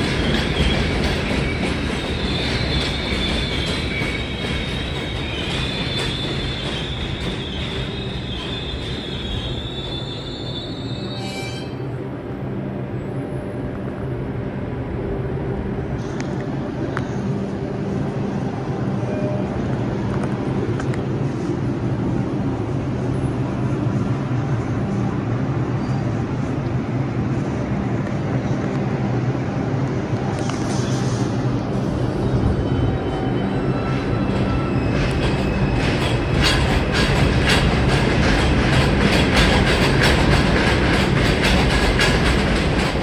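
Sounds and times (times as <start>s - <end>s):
train two-tone low hum: 0.0s - 43.0s
high wheel squeal: 0.2s - 11.9s.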